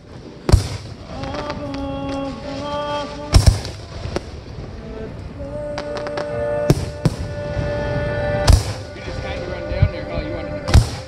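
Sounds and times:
faint fireworks pops: 0:00.0 - 0:04.7, 0:08.4 - 0:08.9, 0:10.7 - 0:11.0
fireworks bursting with booms: 0:00.0 - 0:04.8, 0:05.6 - 0:11.0
music: 0:00.0 - 0:11.0.

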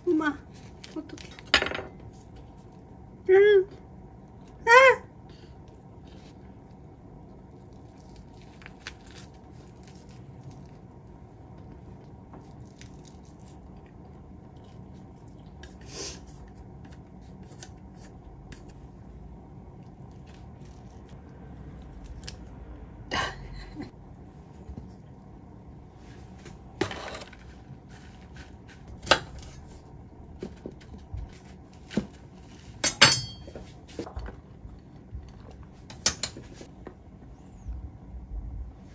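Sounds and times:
low steady hum: 0:00.0 - 0:38.9
dishes clinking on stone countertop: 0:01.4 - 0:02.0, 0:32.8 - 0:33.7.

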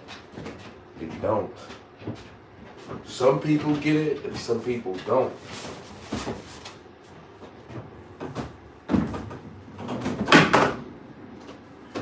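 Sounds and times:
objects knocking and clattering: 0:07.4 - 0:12.0.

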